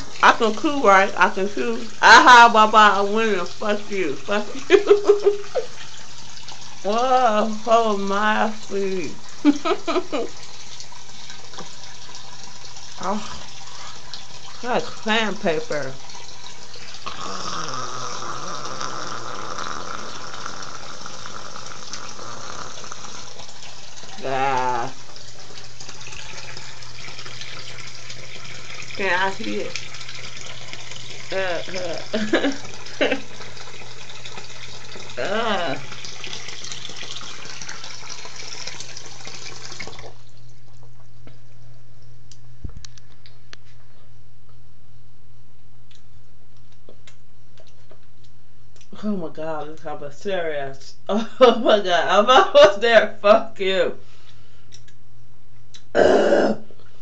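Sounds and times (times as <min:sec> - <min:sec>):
water running from a tap: 0:00.0 - 0:40.8
low steady hum: 0:00.0 - 0:57.0.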